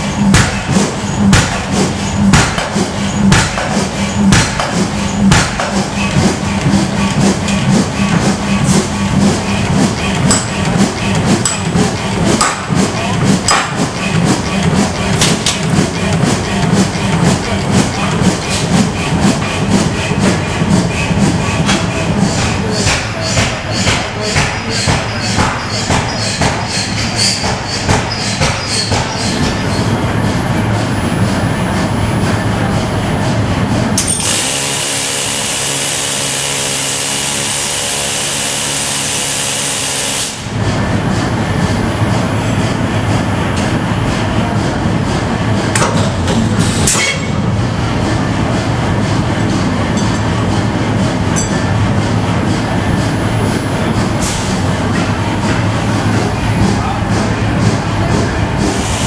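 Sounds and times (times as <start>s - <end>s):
forging machine hiss and hum: 0.0s - 59.0s
steady machine noise: 0.0s - 59.0s
sharp metallic knocks: 0.1s - 8.9s, 9.8s - 17.9s, 21.4s - 29.8s
sharp knocks: 0.3s - 8.8s, 10.2s - 13.9s, 21.6s - 29.6s.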